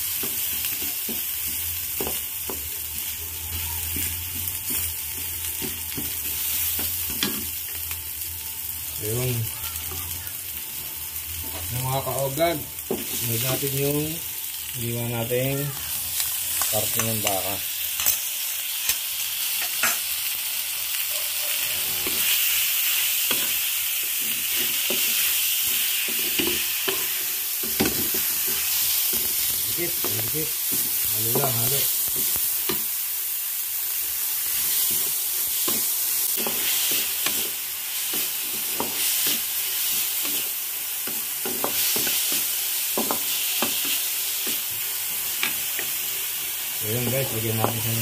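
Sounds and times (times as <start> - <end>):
meat sizzling in hot oil: 0.0 - 48.0.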